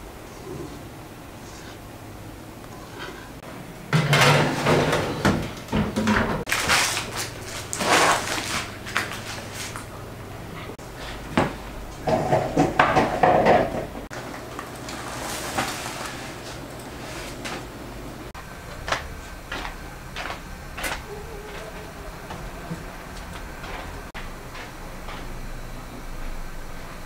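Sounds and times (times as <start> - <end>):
metal baking tray clattering: 3.9 - 6.5
baking paper rustling: 6.5 - 9.9, 14.8 - 17.6.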